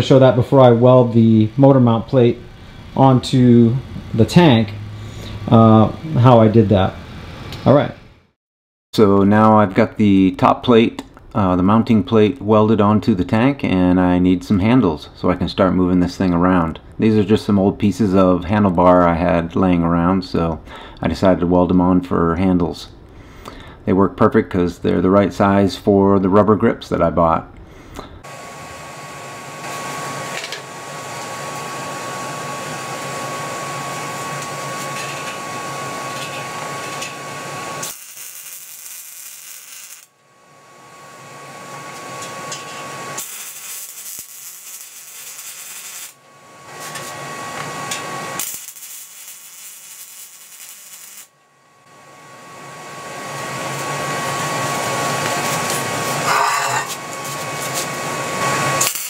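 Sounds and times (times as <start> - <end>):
welding arc crackling: 28.3 - 51.4, 52.6 - 59.0.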